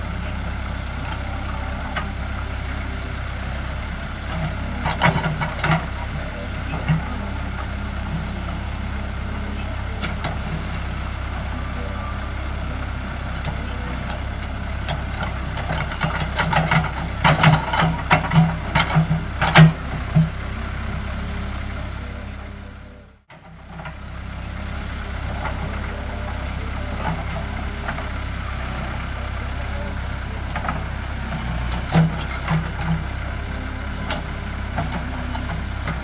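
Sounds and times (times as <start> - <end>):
diesel engine running: 0.0 - 36.0
irregular knocks and clanks: 14.9 - 20.4.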